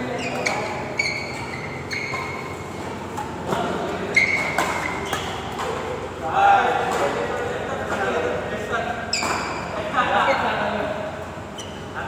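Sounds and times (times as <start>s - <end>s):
shoes squeaking on court: 0.0s - 6.1s, 9.0s - 9.8s, 11.3s - 12.0s
rackets hitting shuttlecock: 1.4s - 6.1s.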